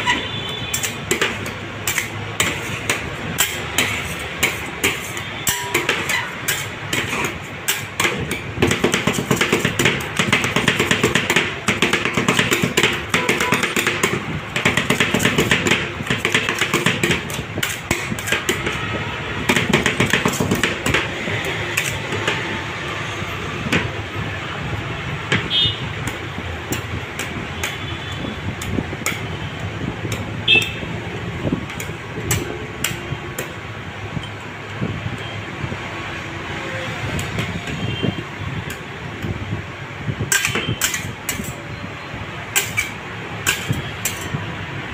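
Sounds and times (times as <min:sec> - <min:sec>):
metal spatulas knocking on steel: 0:00.1 - 0:18.9, 0:19.5 - 0:21.2, 0:31.6 - 0:33.6, 0:40.3 - 0:41.6, 0:42.5 - 0:44.4
spatula scraping ice cream: 0:01.9 - 0:08.0.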